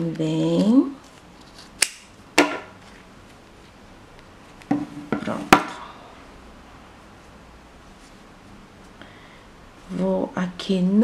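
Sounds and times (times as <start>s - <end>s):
objects knocking on wooden table: 4.7s - 5.8s.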